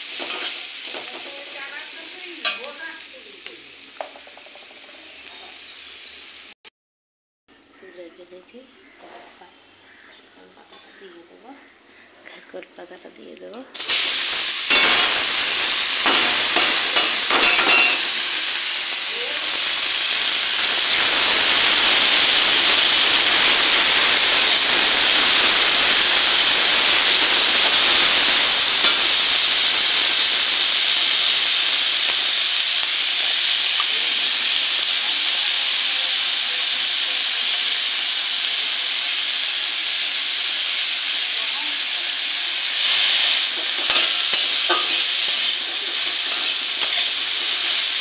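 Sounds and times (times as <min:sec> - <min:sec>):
leaves sizzling in a wok: 0:00.0 - 0:06.6, 0:07.8 - 0:12.0, 0:12.8 - 0:48.0
metal clattering on pan: 0:00.2 - 0:01.4, 0:02.4 - 0:02.8, 0:04.0 - 0:04.9, 0:14.7 - 0:15.3, 0:16.0 - 0:18.2, 0:43.6 - 0:47.2.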